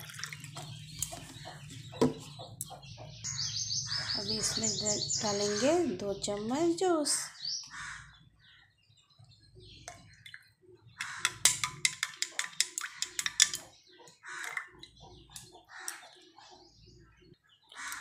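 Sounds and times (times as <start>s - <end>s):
spoon clinking against glass: 11.3s - 13.7s.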